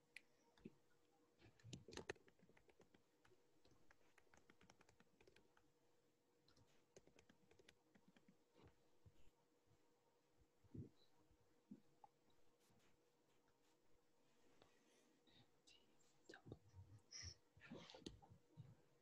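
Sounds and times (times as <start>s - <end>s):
faint typing on a computer keyboard: 0.0s - 9.4s.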